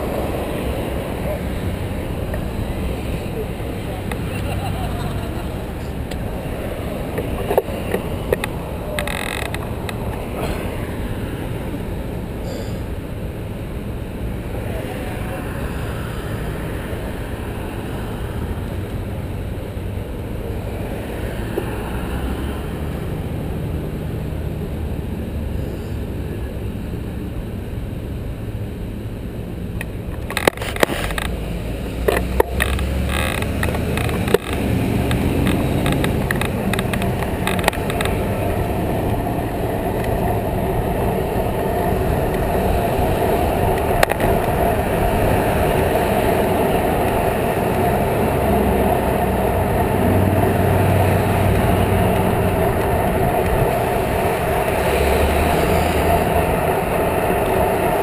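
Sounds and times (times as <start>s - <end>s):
road traffic rumbling: 0.0s - 58.0s
wind and tyre noise: 0.0s - 58.0s
bicycle clicks and rattles: 32.1s - 38.2s.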